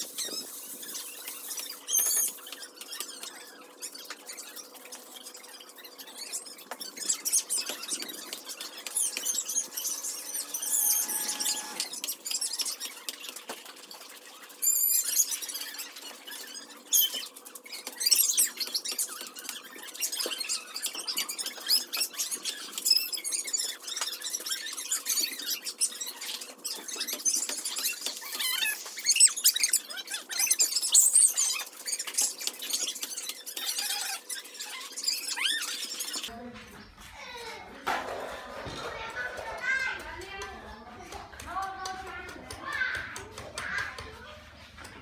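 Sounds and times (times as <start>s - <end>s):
high-pitched chirping: 0.1s - 13.0s.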